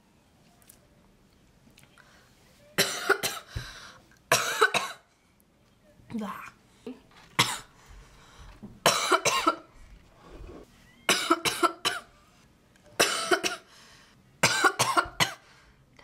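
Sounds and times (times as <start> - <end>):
woman coughing: 2.8 - 3.5, 4.3 - 5.1, 7.4 - 7.7, 8.8 - 9.7, 11.1 - 12.1, 13.0 - 13.7, 14.4 - 15.4.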